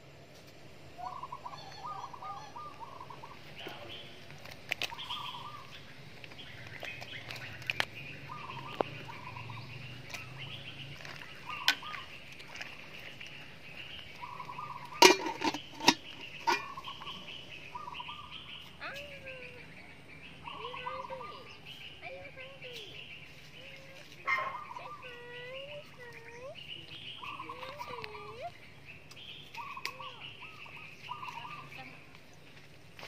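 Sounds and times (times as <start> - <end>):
low steady hum: 0.0 - 33.0
birds warbling: 0.8 - 33.0
metal pot lid clinks: 15.0 - 16.8.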